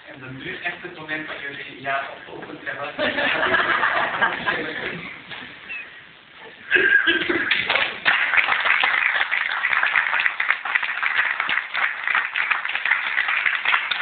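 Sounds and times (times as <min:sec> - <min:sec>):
audience applauding: 0:07.4 - 0:14.0.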